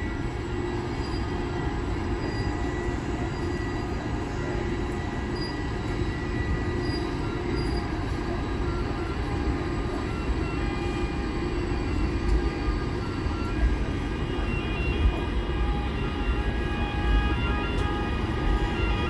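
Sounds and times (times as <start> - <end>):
train rumbling on rails: 0.0 - 19.0.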